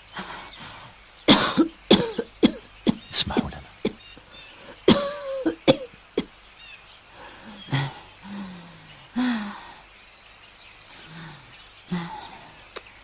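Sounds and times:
woman coughing: 1.3s - 4.0s, 4.9s - 5.9s.

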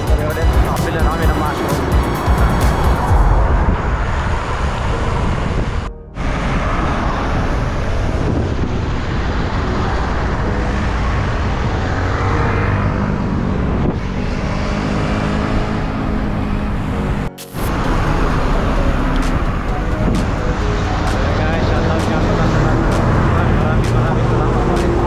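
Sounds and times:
road traffic: 0.0s - 25.0s
motor vehicle engine passing: 0.9s - 25.0s
wind on microphone: 2.2s - 21.2s.

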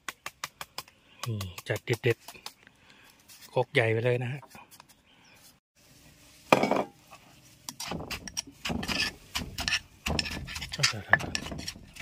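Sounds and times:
metal spoon scraping: 7.7s - 12.0s
pestle pounding in stone mortar: 7.8s - 12.0s.

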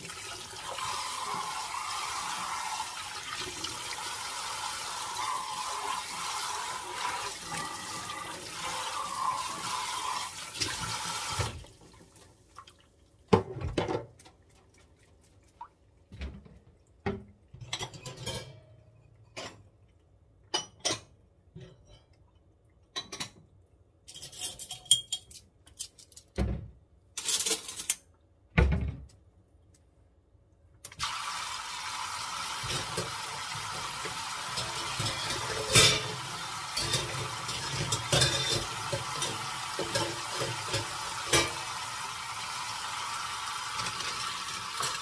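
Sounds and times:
faucet running into metal sink: 0.0s - 11.7s, 31.0s - 45.0s
dishware clinking: 7.5s - 8.4s, 17.6s - 19.6s, 34.6s - 36.2s, 36.8s - 41.6s.

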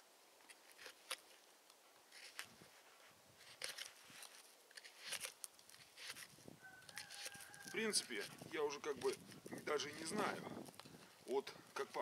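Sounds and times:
knife scraping frozen wood: 0.5s - 1.4s, 2.1s - 2.6s, 3.4s - 11.1s.

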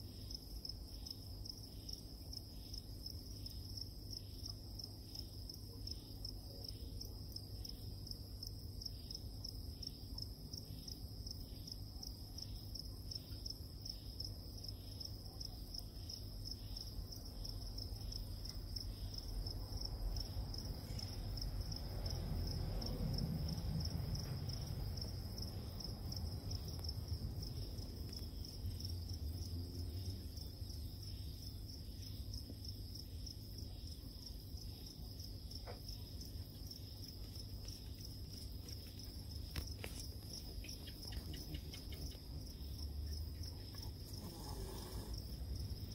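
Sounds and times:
low background rumble: 18.8s - 32.1s.

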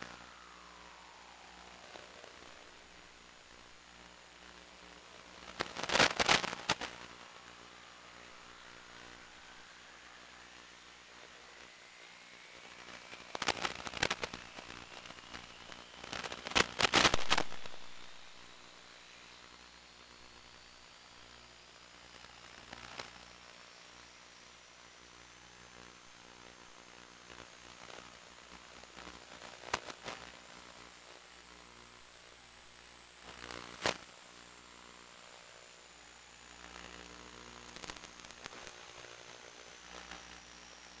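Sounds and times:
crackling static bursts: 0.0s - 41.0s
faint high whine rising: 0.0s - 41.0s
faint hum: 0.0s - 41.0s
steady hiss: 0.0s - 41.0s
sharp crackling pops: 4.4s - 8.2s, 12.6s - 18.7s, 22.6s - 23.2s, 29.0s - 30.4s, 33.2s - 34.1s, 36.7s - 40.2s.

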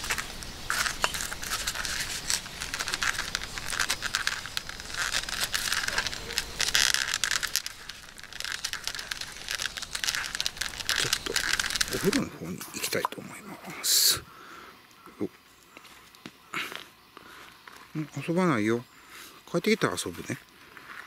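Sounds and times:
foil mat crinkling: 0.0s - 13.0s.

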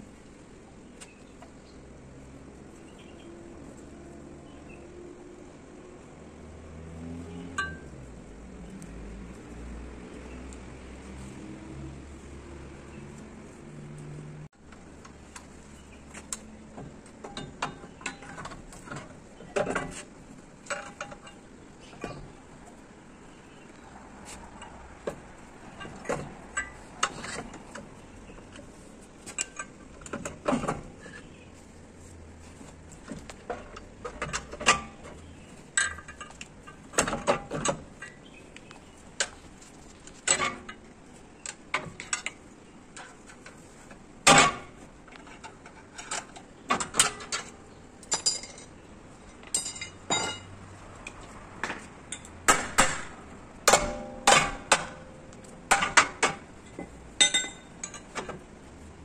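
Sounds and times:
metallic clinks and knocks: 7.5s - 9.5s, 44.3s - 58.6s.

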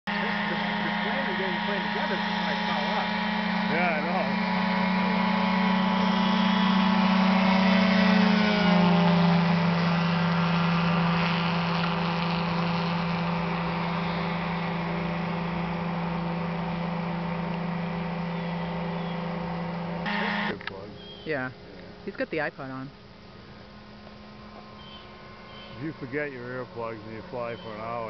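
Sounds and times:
light aircraft engine and propeller: 0.0s - 28.0s.

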